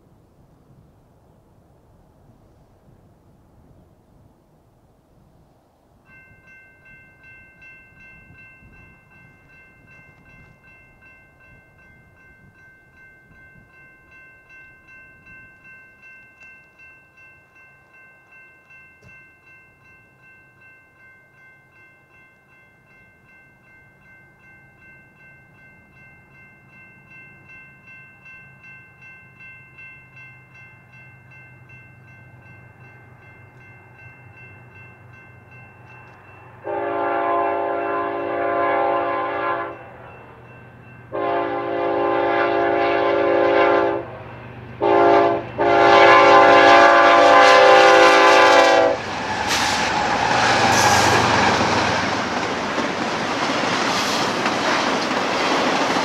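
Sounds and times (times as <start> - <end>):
grade crossing warning bell: 6.0 - 49.2
diesel locomotive rumble: 41.1 - 56.0.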